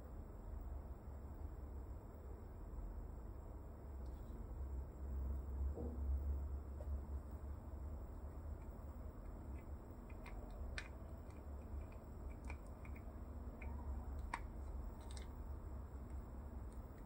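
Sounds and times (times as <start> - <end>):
low steady hum: 0.0 - 17.0
plastic parts clicking and tapping: 8.6 - 17.0.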